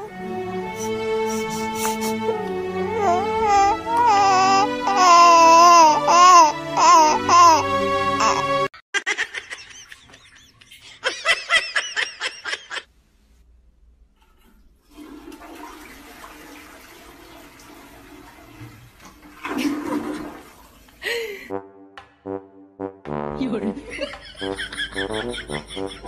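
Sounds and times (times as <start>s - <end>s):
toilet flushing: 14.2s - 21.1s.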